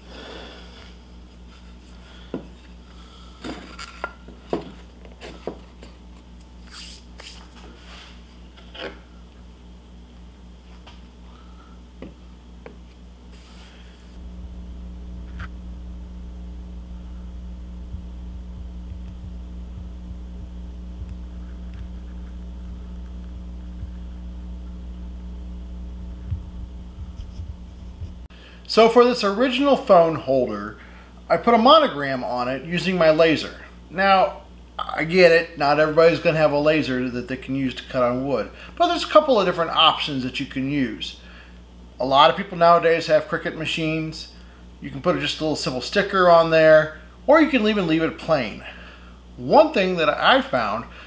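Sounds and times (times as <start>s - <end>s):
low electrical mains hum: 0.0s - 51.0s
soft low thump: 17.6s - 22.0s, 26.1s - 28.3s
rubbing scrape: 27.0s - 28.3s.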